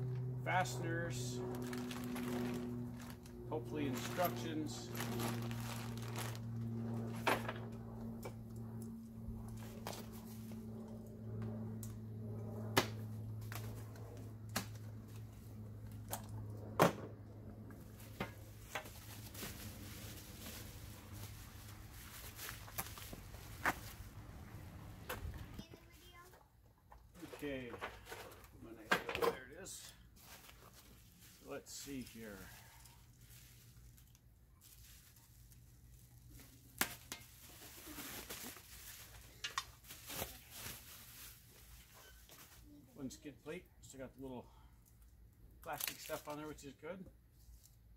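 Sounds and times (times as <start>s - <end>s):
steady low hum: 0.0s - 25.8s
bubble wrap rustling and tearing: 1.5s - 3.3s, 3.9s - 6.6s, 18.6s - 24.0s, 32.4s - 42.6s.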